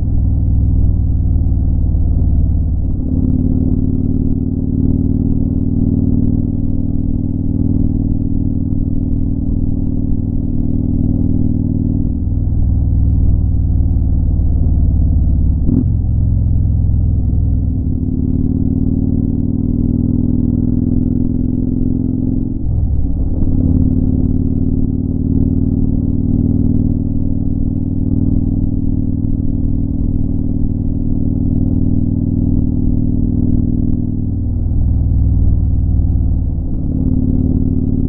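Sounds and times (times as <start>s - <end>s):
motorcycle engine at speed: 0.0s - 38.0s.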